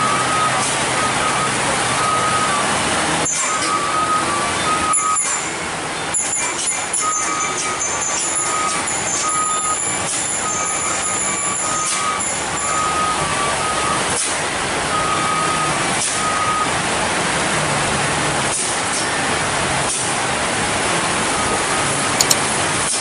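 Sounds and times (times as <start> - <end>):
reversing alarm beeping: 0.0 - 14.2, 14.9 - 16.8
heavy truck engine: 0.0 - 23.0
rain hissing: 0.0 - 23.0.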